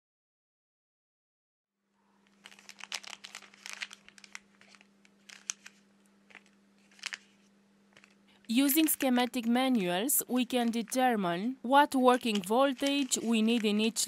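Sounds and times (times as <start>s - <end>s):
faint steady hum: 1.8s - 14.0s
plastic packets crinkling: 2.2s - 9.5s, 10.3s - 11.1s, 12.0s - 14.0s.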